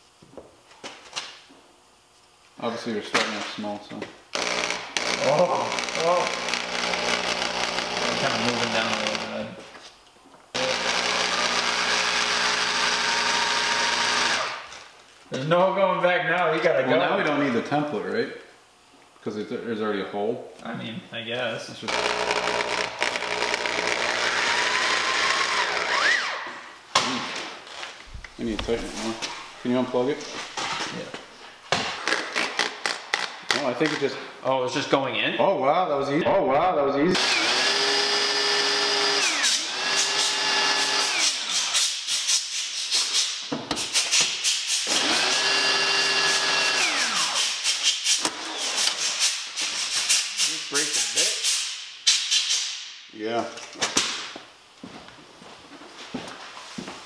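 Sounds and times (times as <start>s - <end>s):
electric drill boring metal: 4.3s - 9.3s, 10.6s - 14.7s, 21.9s - 26.4s, 37.2s - 41.7s, 44.9s - 47.5s.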